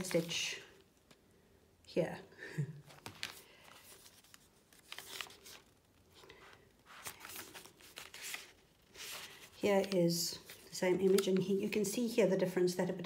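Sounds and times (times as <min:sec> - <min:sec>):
paper pages rustling: 0:00.0 - 0:01.2, 0:02.8 - 0:12.0.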